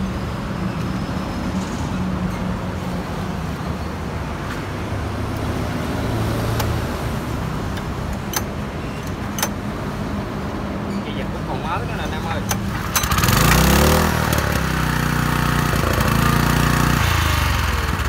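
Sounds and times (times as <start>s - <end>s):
sharp clicks: 7.7s - 9.6s
small petrol engine running: 12.4s - 18.0s.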